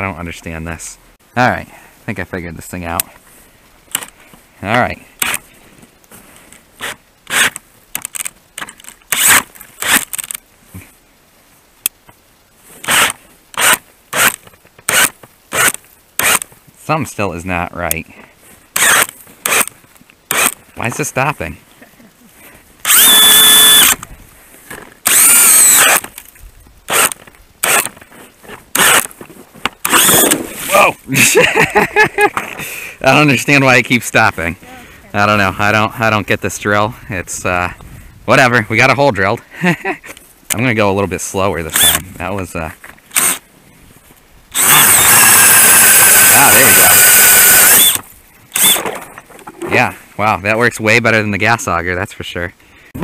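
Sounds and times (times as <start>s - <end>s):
drill and auger rasping scrapes: 6.8s - 7.6s, 9.1s - 10.4s, 12.8s - 16.5s, 18.8s - 19.7s, 20.3s - 20.6s, 22.8s - 24.0s, 25.0s - 26.1s, 26.9s - 29.2s, 29.8s - 30.7s, 41.7s - 42.0s, 43.1s - 43.4s, 44.5s - 49.0s.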